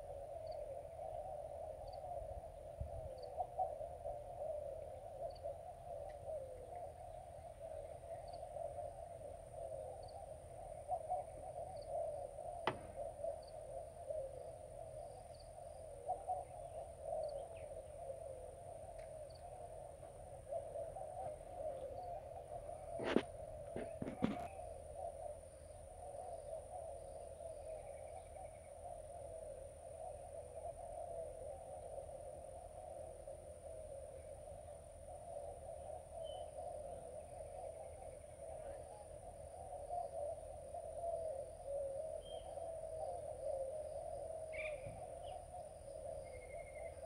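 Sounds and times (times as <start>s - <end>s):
faint chirp: 0.0s - 47.0s
warbling wildlife drone: 0.0s - 47.0s
sharp click: 12.6s - 13.0s.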